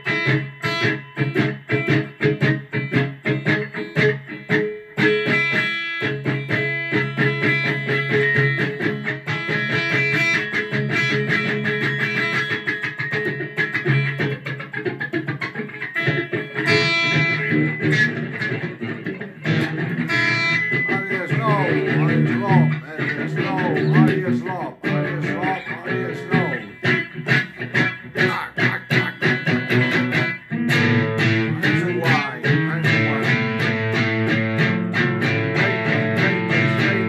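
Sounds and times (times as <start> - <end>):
electric guitar strumming chords: 0.0 - 37.0
man singing: 20.9 - 26.9, 28.1 - 29.6, 31.4 - 33.6.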